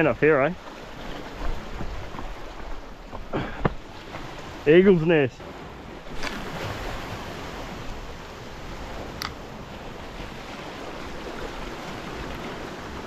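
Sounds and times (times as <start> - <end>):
sea surf washing against rock: 0.0 - 13.0
sharp click: 9.2 - 9.4.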